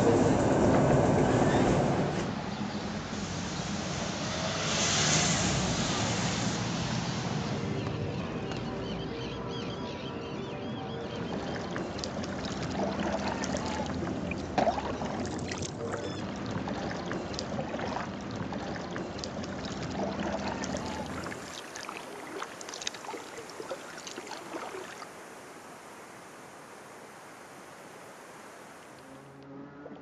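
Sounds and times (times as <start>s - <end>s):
steady water rush: 3.0s - 9.3s, 11.1s - 29.4s
water lapping and dripping: 11.1s - 29.2s
water splashing around kayak: 11.1s - 29.4s
paddle strokes: 11.2s - 25.2s.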